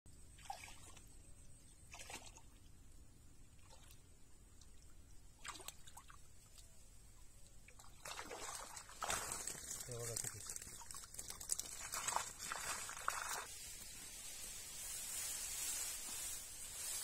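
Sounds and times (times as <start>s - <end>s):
small water splashes: 0.3s - 1.2s, 1.9s - 2.7s, 3.5s - 6.7s, 7.6s - 13.7s.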